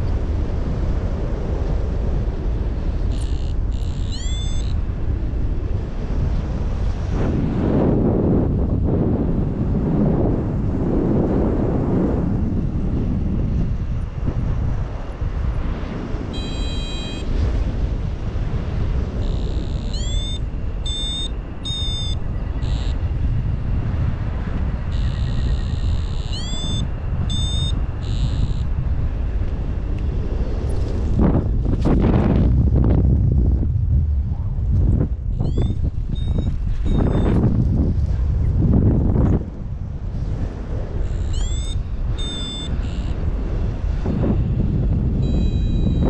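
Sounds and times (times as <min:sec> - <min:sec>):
wind rushing over microphone: 0:00.0 - 0:46.0
high-pitched beeping tones: 0:03.1 - 0:04.8, 0:16.4 - 0:17.3, 0:19.2 - 0:23.0, 0:24.9 - 0:28.7, 0:35.4 - 0:37.4, 0:41.0 - 0:43.2, 0:45.2 - 0:46.0.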